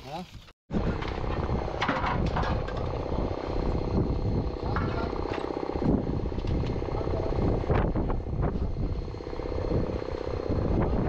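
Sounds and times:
motorised machine running: 0.7 - 11.0
metal knocks and clanks: 0.9 - 3.0.

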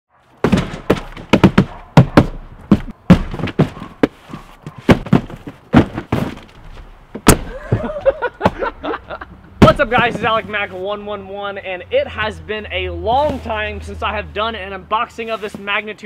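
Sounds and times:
cardboard boxes thudding on table: 0.4 - 6.6.

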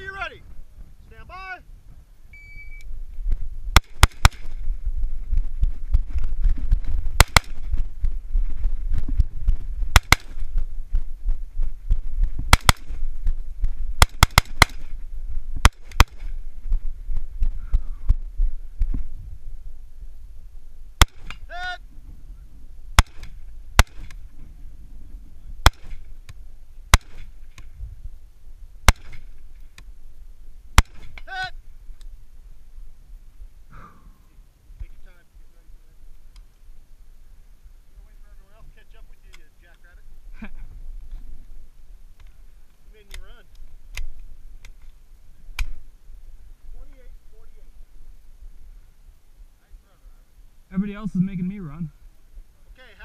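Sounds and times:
brief pitched call: 2.3 - 2.9, 50.7 - 51.9
rifle shots: 3.7 - 4.6, 7.1 - 7.8, 9.9 - 10.5, 12.5 - 13.0, 14.0 - 14.9, 15.6 - 16.4, 23.0 - 24.2, 25.6 - 26.1, 26.9 - 27.4, 28.8 - 29.3, 30.8 - 31.2.

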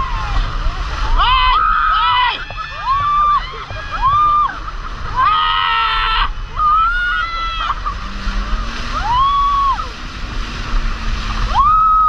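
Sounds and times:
rushing water: 0.0 - 12.0
people shrieking: 1.1 - 8.2, 8.8 - 10.0.

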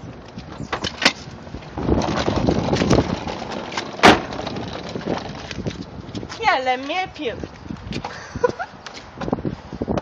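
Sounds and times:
rough scraping clatter: 0.8 - 6.3.

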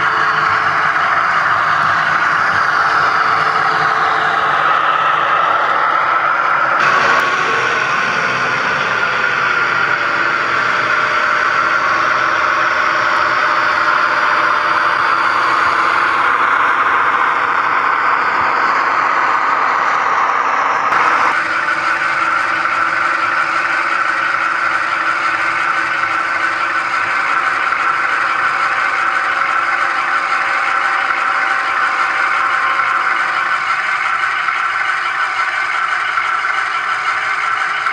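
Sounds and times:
model locomotive diesel engine sound: 0.0 - 37.9
model wheels rattling on track: 21.0 - 37.9.

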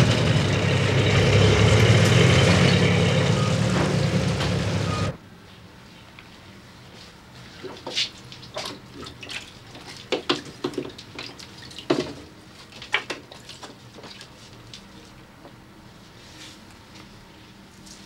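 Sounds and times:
water splashing in a tray: 7.7 - 14.8.

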